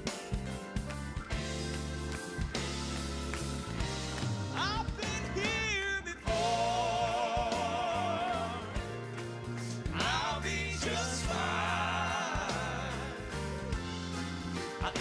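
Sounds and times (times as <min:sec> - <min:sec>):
band with bass and electric guitar: 0:00.0 - 0:15.0
man singing with vibrato: 0:04.6 - 0:08.8, 0:10.0 - 0:13.4.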